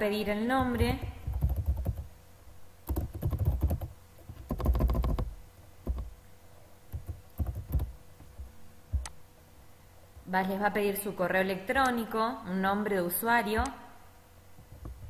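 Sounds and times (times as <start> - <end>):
typing on computer keyboard: 0.6 - 2.1, 2.9 - 6.1, 6.9 - 8.0.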